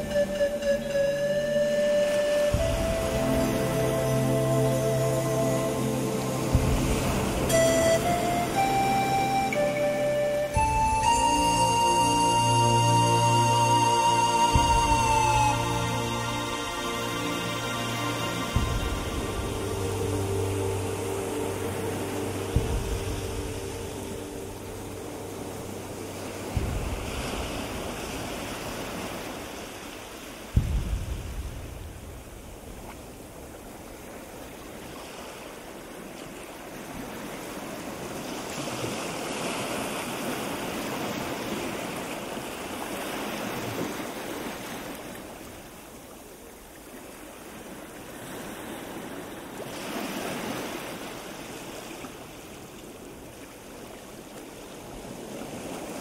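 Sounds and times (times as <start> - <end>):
wind blowing across microphone: 0.0 - 8.9, 14.1 - 56.0
low thump: 26.5 - 28.2, 30.6 - 33.0.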